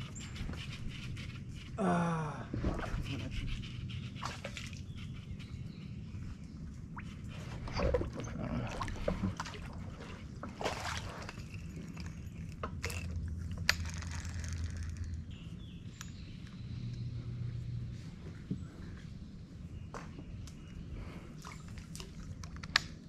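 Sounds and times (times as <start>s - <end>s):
water splashing beside boat: 7.3s - 12.1s.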